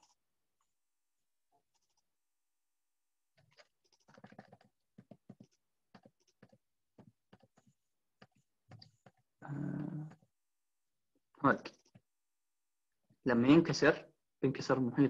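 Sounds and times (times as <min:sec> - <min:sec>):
keyboard and mouse clicks: 0:03.4 - 0:09.3.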